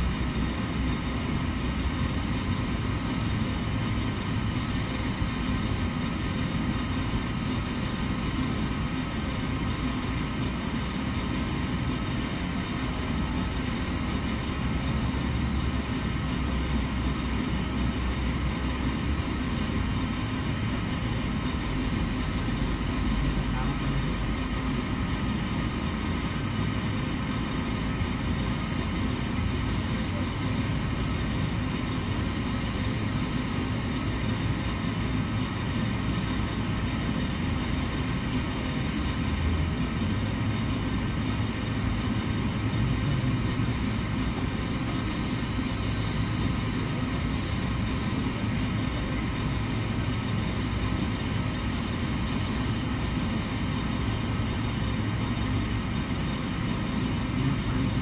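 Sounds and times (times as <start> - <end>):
low rumbling drone: 0.0 - 58.0.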